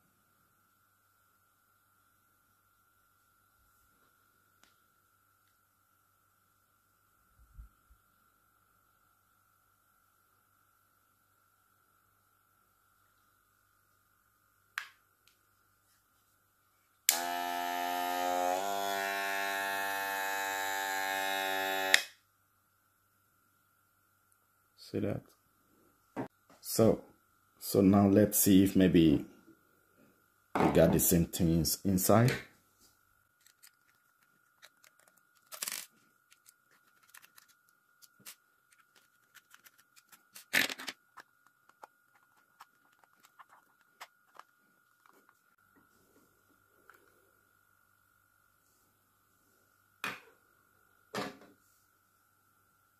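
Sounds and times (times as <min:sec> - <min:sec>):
hair clipper handled clicks: 0:17.1 - 0:17.4
hair clipper switch click: 0:17.1 - 0:17.4, 0:21.8 - 0:22.1
hair clipper buzzing: 0:17.1 - 0:22.2.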